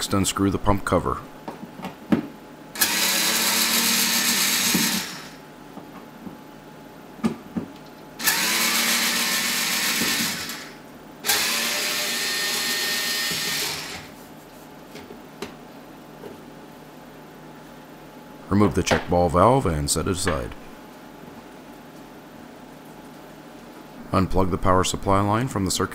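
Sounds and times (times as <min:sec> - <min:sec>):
cordless screwdriver running: 0:02.8 - 0:05.4, 0:08.2 - 0:14.1.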